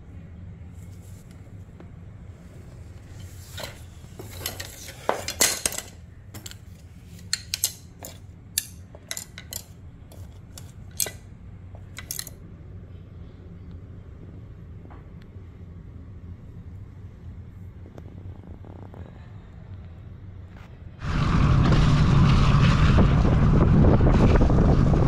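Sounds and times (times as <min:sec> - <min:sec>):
fishing rod sections clicking: 0:07.2 - 0:11.2, 0:11.8 - 0:12.4.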